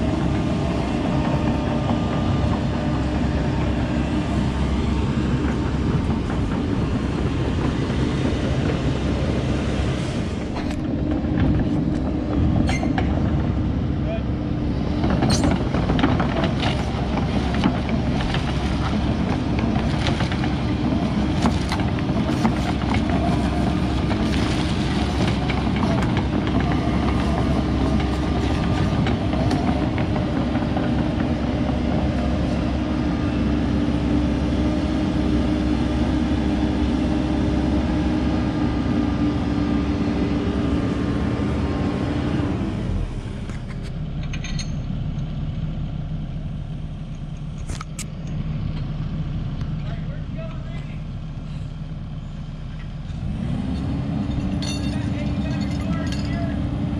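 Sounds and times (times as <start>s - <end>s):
steel tracks rattling: 0.0s - 13.8s
diesel engine under load: 0.0s - 56.9s
engine idling: 0.0s - 56.9s.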